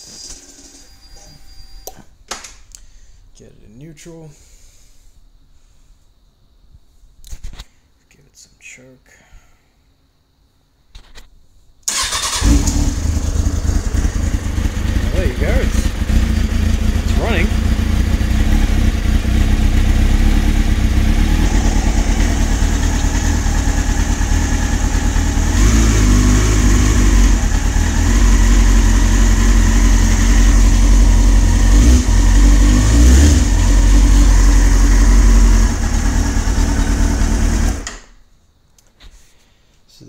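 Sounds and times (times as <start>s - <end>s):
motorcycle engine idling: 11.9s - 25.7s, 26.3s - 32.7s, 33.3s - 37.8s.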